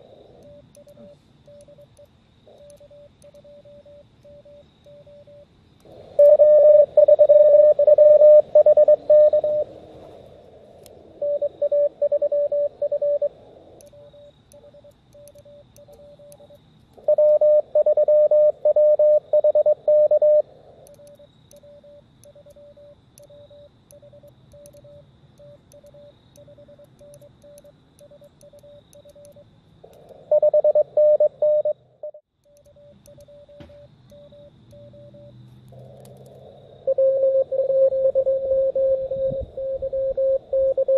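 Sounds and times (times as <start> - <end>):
radio band hiss: 0.0 - 1.5
faint keyed radio signals: 0.0 - 40.9
morse code tones: 0.4 - 5.5, 6.2 - 9.7, 11.2 - 13.3, 13.9 - 20.4, 21.0 - 29.4, 30.3 - 35.4, 36.9 - 40.9.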